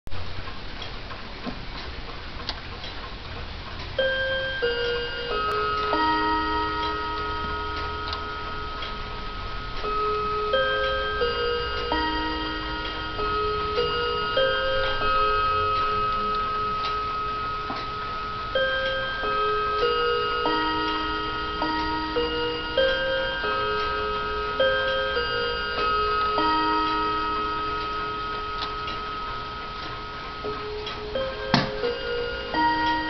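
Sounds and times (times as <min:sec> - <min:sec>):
clock ticking: 0:00.1 - 0:33.0
clock chime melody: 0:03.9 - 0:33.0.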